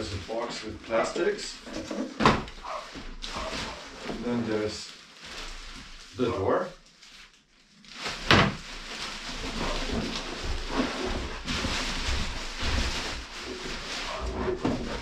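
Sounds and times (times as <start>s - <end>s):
plastic wrapping rustling: 0.0s - 15.0s
cardboard scraping: 8.1s - 15.0s.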